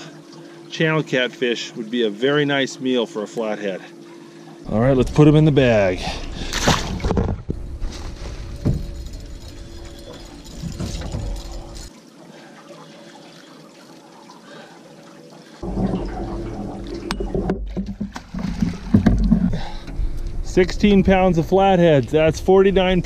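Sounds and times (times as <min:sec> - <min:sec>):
water sloshing and gurgling: 0:00.0 - 0:23.0
low rumble: 0:15.6 - 0:23.0.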